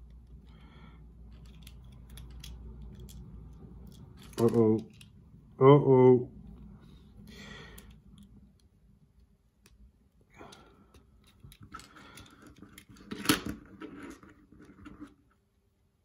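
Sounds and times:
plastic bricks clicking and rattling: 1.3s - 5.2s.

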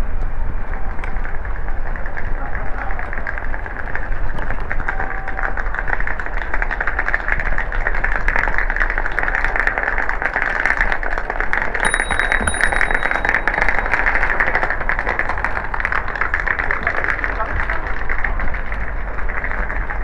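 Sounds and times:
thin high ring: 11.8s - 14.6s.

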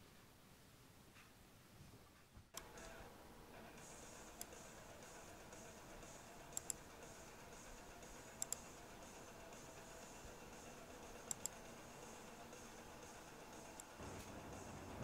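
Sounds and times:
faint room hiss: 0.0s - 15.0s.

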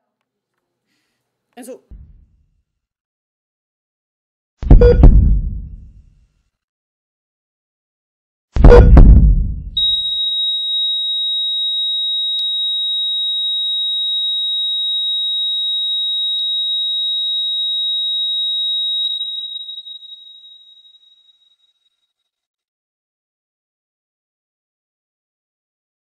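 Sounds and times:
heart monitor flatline tone: 4.7s - 5.9s, 9.8s - 21.2s.

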